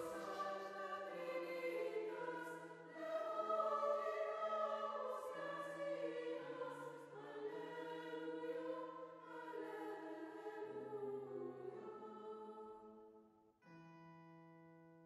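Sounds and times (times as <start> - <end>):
choir singing long chords: 0.0 - 13.2.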